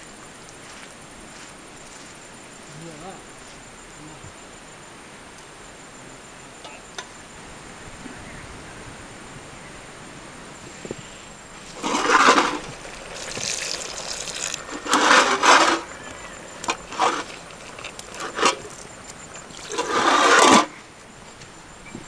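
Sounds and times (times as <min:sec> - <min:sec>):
water gushing and splashing: 0:11.6 - 0:20.7.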